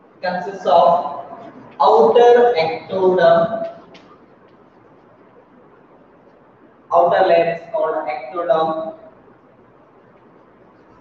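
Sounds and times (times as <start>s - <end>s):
room noise: 0.0s - 11.0s.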